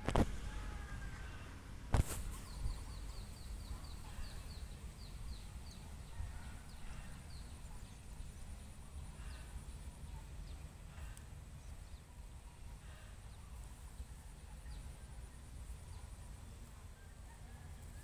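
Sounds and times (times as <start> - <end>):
bird chirping: 2.2 - 12.4.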